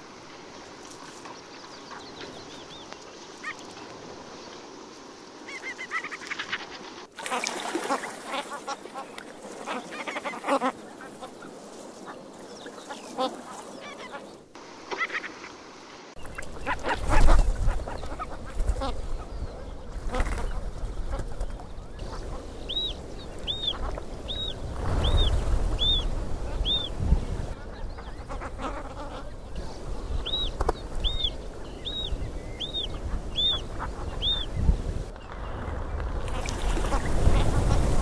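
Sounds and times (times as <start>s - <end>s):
bird nasal honk-like calls: 7.3s - 11.4s, 27.5s - 29.4s.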